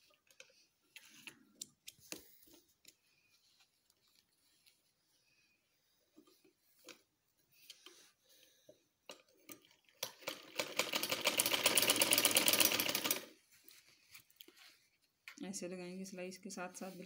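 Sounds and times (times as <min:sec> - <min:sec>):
sewing machine clatter: 0:09.4 - 0:13.4.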